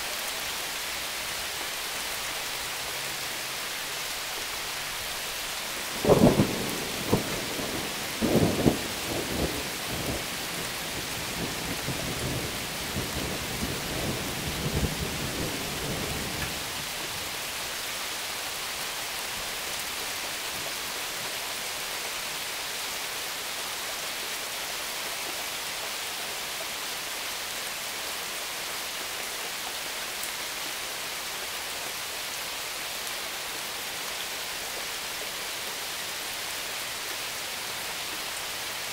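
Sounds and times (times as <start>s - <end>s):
steady rain falling: 0.0s - 38.9s
thunder cracking and rumbling: 6.0s - 10.2s.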